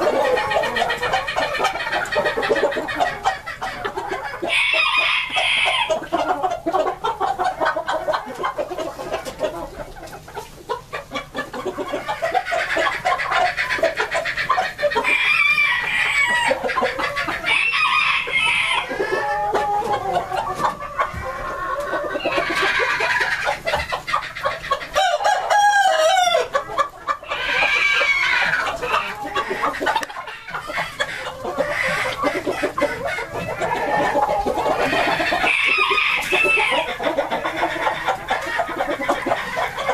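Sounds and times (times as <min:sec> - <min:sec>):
roosters crowing: 0:00.0 - 0:08.4, 0:11.6 - 0:39.9
chickens clucking: 0:00.0 - 0:39.9.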